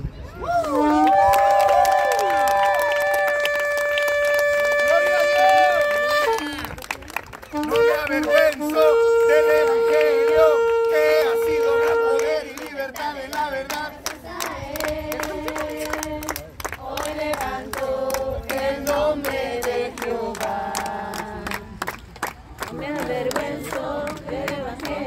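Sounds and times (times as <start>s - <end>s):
people clapping: 0.4s - 25.0s
group singing worship song: 12.2s - 21.7s, 22.7s - 25.0s.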